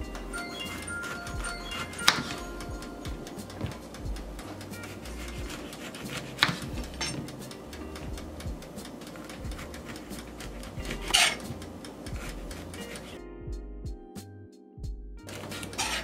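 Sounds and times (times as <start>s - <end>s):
blade clicking on cutting board: 3.5s - 7.6s.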